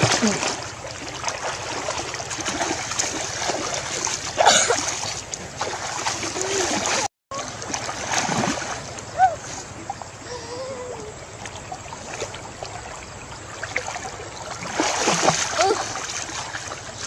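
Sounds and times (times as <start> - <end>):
water splashing around waders: 0.0 - 10.3, 11.1 - 17.0.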